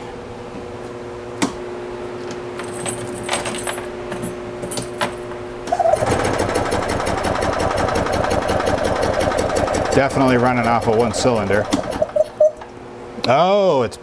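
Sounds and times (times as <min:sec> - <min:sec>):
golf cart engine running: 0:06.0 - 0:12.4.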